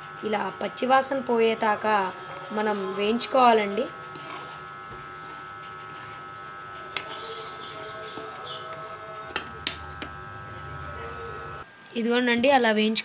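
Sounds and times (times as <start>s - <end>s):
steady background hum: 0.0s - 13.0s
spatula scraping flour in metal pan: 5.0s - 9.5s.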